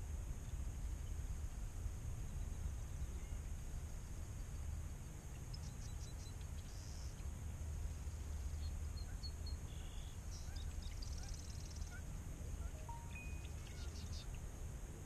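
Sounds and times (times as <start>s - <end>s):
wind rumble on microphone: 0.0s - 15.0s
small birds chirping: 2.2s - 7.4s, 8.0s - 14.5s
bird buzzy trill: 12.6s - 14.3s.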